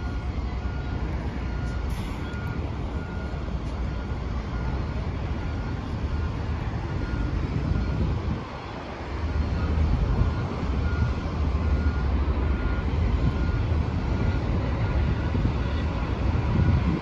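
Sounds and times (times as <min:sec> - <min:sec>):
faint short beeps: 0:00.0 - 0:04.8
bus engines rumbling: 0:00.0 - 0:17.0.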